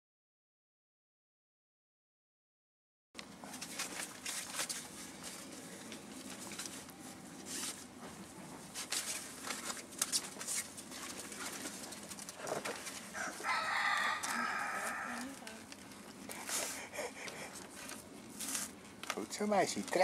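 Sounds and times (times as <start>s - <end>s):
puppy playing with toy on paving: 3.4s - 20.0s
long pitched call: 13.2s - 15.5s.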